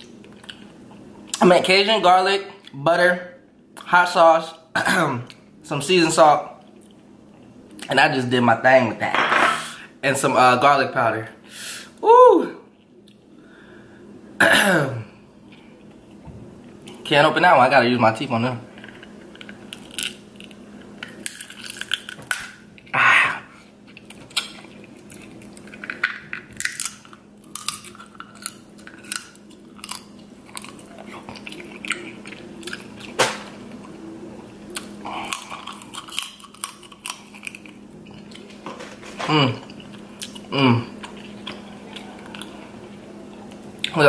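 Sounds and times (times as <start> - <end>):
chewing: 0.0 - 1.4, 6.6 - 7.9, 18.7 - 22.9, 23.8 - 44.0
crab shell crunching in teeth: 18.8 - 23.0, 23.9 - 33.2, 34.7 - 38.6.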